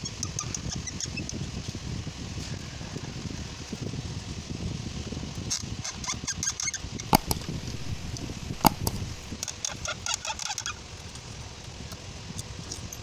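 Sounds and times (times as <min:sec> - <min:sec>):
sharp knocks: 0:07.2 - 0:09.4
small clicks and taps: 0:07.2 - 0:09.6.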